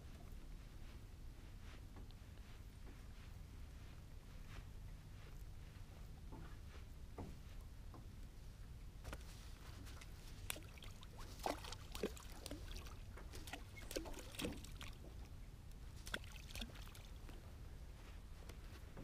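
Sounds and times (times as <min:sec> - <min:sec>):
small waves lapping against hull: 0:09.0 - 0:18.0.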